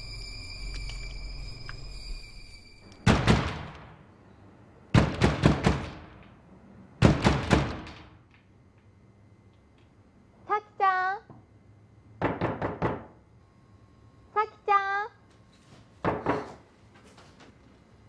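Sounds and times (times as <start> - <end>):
steady hum with high tones: 0.0 - 18.0
heavy pounding on a door: 5.0 - 6.1, 7.0 - 8.0, 12.2 - 13.1.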